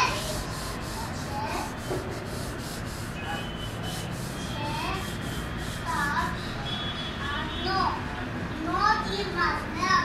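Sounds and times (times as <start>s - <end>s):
pen nib scratching on paper: 0.0s - 6.4s.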